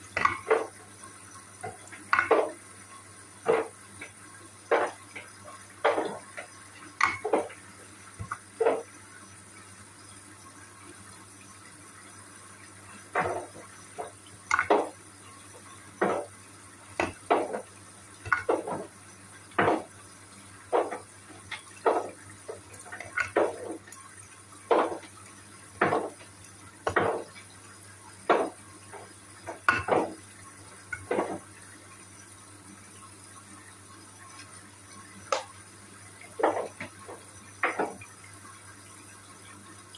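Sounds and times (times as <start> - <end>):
water sloshing and splashing: 0.0 - 2.7, 3.4 - 9.0, 12.7 - 31.6, 35.3 - 38.3.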